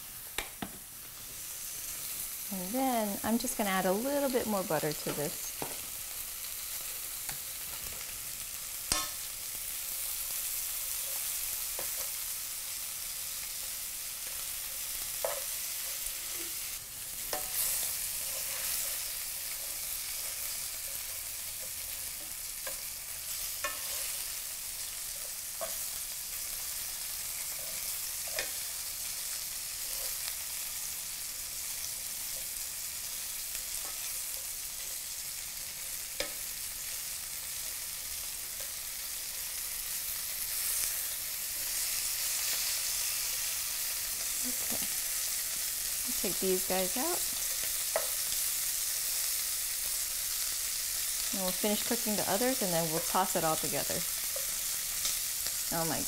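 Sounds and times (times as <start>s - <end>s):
shrimp sizzling in butter: 0.0s - 56.0s
metal tongs clicking on pan: 8.9s - 9.2s, 28.3s - 28.6s.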